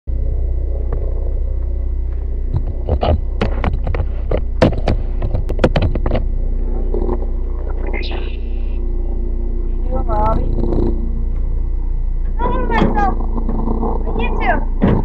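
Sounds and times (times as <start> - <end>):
low rumble with faint hum: 0.0 - 15.0
microphone handling knocks: 2.1 - 6.3.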